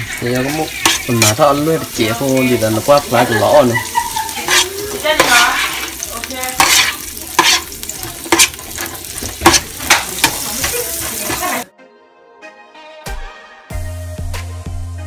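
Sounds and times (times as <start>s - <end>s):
onions sizzling in a frying pan: 0.0s - 11.7s
spoon scraping and knocking pan: 0.0s - 11.7s.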